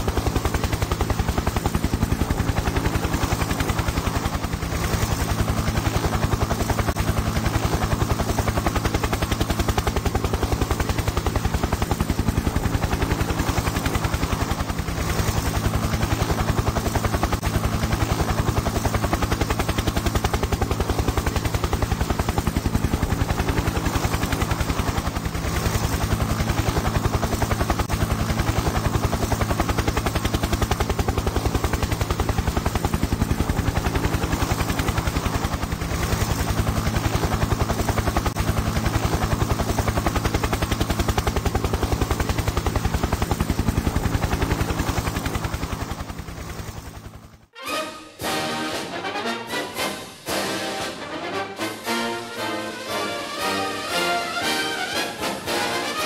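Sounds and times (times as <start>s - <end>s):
helicopter engine drone: 0.0s - 56.0s
helicopter rotor chop: 0.0s - 56.0s.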